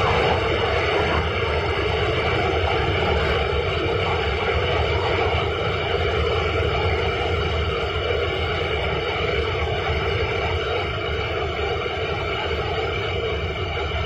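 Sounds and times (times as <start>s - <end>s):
large blower fan running: 0.0s - 14.0s.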